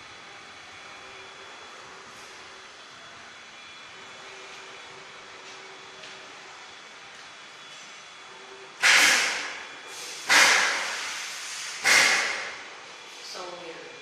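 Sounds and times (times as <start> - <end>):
bursts of hissing noise: 8.8 - 12.5.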